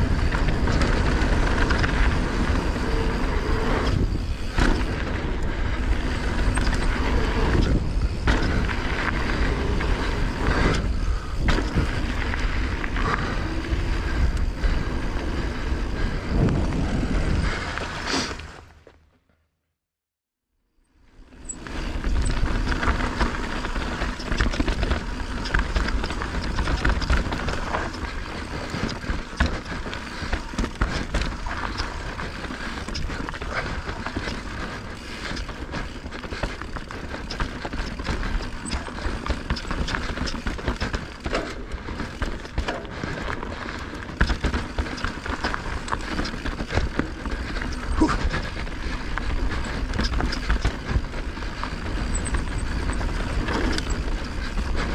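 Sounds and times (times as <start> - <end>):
wind rumble on microphone: 0.0 - 18.2
bike chain and frame rattling: 0.0 - 18.6, 21.1 - 54.9
tyres crunching over stones: 21.5 - 54.9.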